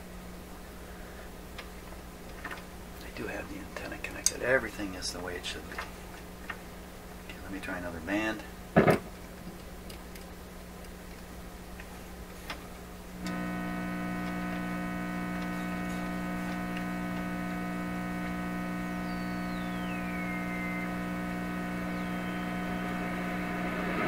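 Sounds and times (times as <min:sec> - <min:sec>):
loudspeaker buzzing mains hum: 0:12.8 - 0:24.0
faint whistle falling in pitch: 0:19.0 - 0:21.0, 0:21.9 - 0:23.1.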